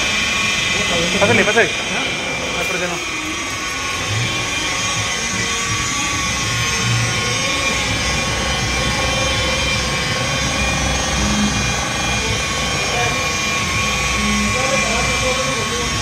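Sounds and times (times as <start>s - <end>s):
polisher motor whining: 0.0s - 16.0s.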